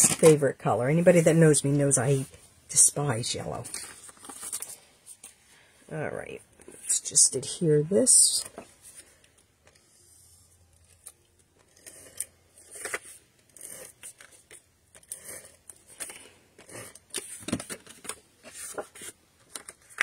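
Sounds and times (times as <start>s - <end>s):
paper rustling and scraping: 3.6s - 5.4s, 11.7s - 20.0s.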